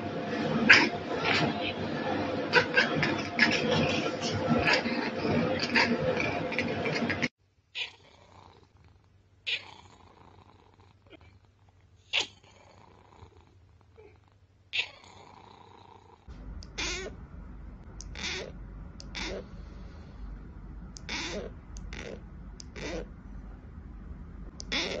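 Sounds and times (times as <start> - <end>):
cat purring: 2.5 - 17.2, 17.8 - 20.3, 20.9 - 23.4, 24.5 - 25.0
cat meowing drawn out: 16.6 - 17.1, 18.0 - 19.4, 21.0 - 23.1, 24.6 - 25.0.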